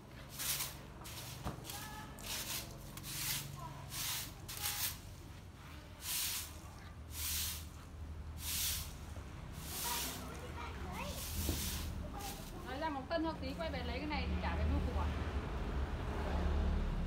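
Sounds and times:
broom sweeping over tiles: 0.1s - 12.8s.

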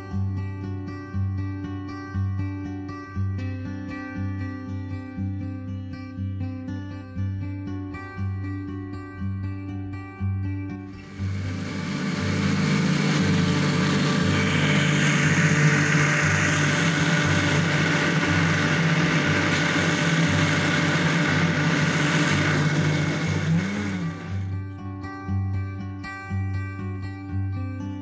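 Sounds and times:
electric blender running: 10.9s - 24.6s.

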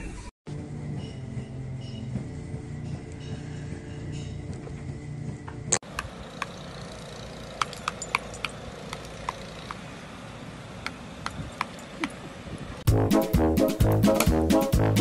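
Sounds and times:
light metallic clinks: 6.3s - 9.8s, 10.9s - 12.3s.

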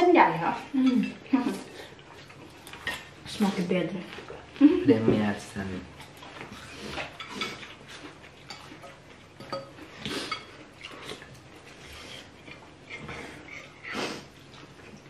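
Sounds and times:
slurping noodle soup: 9.8s - 15.0s.

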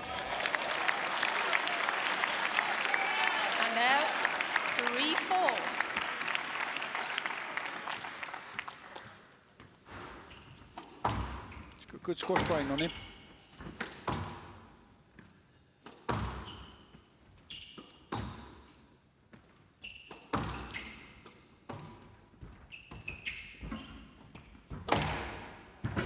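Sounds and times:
squash ball hitting rackets and walls: 10.6s - 12.8s, 13.6s - 14.6s, 15.2s - 16.9s, 17.6s - 18.8s, 19.9s - 24.0s, 24.7s - 26.0s.

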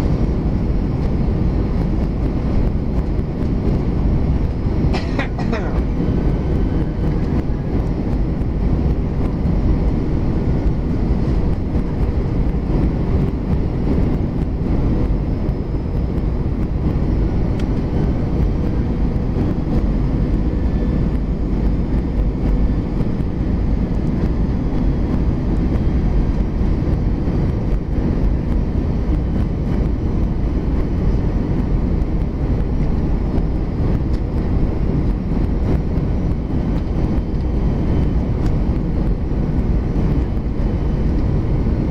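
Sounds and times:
airplane cabin engine rumble: 0.0s - 41.9s
faint hum: 0.0s - 41.9s.

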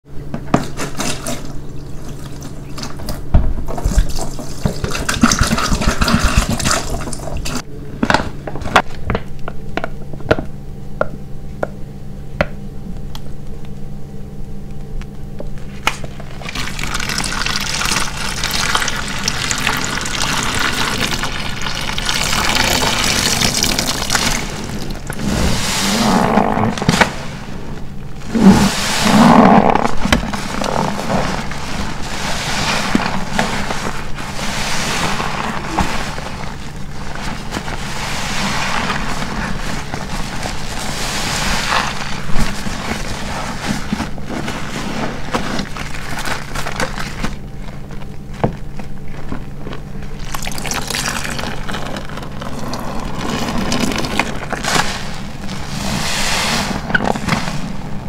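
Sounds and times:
sponge squelching in soapy water: 16.2s - 48.0s, 48.7s - 58.0s.

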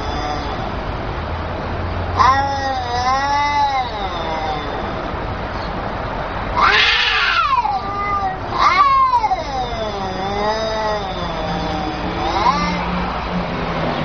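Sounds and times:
cats yowling: 0.0s - 0.8s, 2.1s - 14.0s
cat sharp cries: 6.6s - 13.2s.

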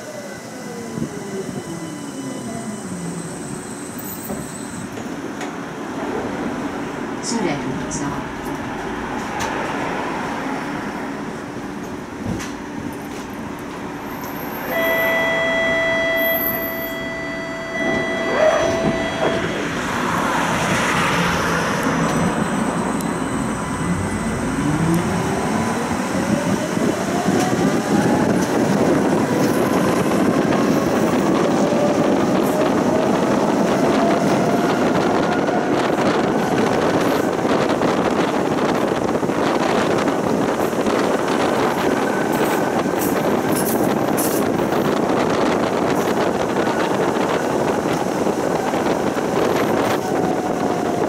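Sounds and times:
tram motors whining: 0.0s - 6.9s, 10.5s - 51.0s
wheels rumbling on rails: 0.0s - 51.0s
steady tone: 14.7s - 27.0s.

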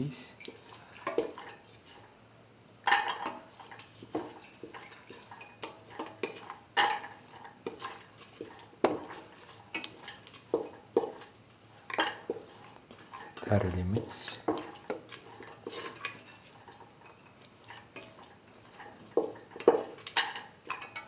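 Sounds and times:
metal ladle scraping steel pot: 14.2s - 21.0s.

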